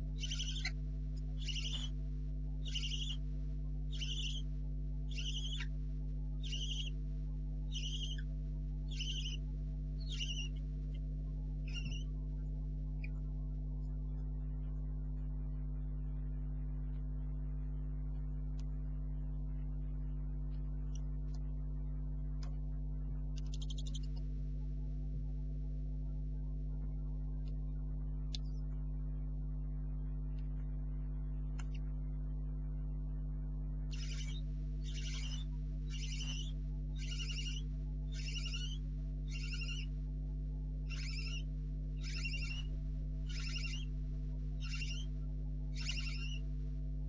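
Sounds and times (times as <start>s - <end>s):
electrical mains hum: 0.0s - 47.0s
owlets hissing calls: 0.2s - 0.8s, 1.4s - 1.9s, 2.6s - 3.2s, 3.9s - 4.4s, 5.1s - 5.7s, 6.4s - 6.9s, 7.8s - 8.2s, 8.9s - 9.4s, 10.1s - 10.5s, 33.9s - 39.9s, 40.9s - 41.4s, 42.0s - 42.7s, 43.3s - 43.9s, 44.6s - 45.1s, 45.8s - 46.4s.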